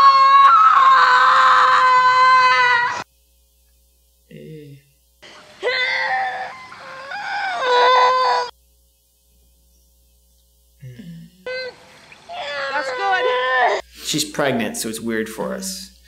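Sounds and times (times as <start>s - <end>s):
high drawn-out crying: 0.0s - 3.0s, 5.3s - 8.5s, 11.4s - 13.8s.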